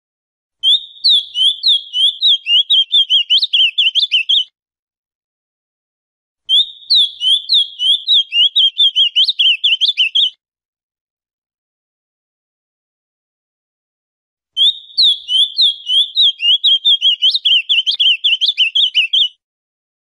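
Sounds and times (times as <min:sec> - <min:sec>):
bird singing whistled notes: 0:00.6 - 0:04.5, 0:06.5 - 0:10.4, 0:14.6 - 0:19.4.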